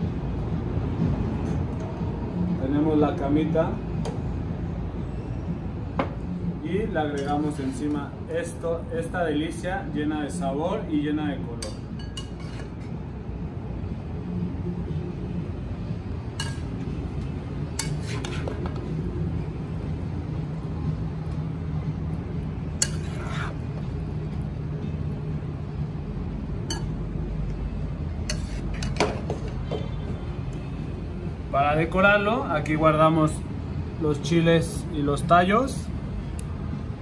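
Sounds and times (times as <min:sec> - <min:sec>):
steady low hum: 0:00.0 - 0:37.0
metal utensil scraping a wok: 0:12.2 - 0:12.9, 0:17.7 - 0:18.8, 0:22.8 - 0:23.6, 0:28.2 - 0:29.6.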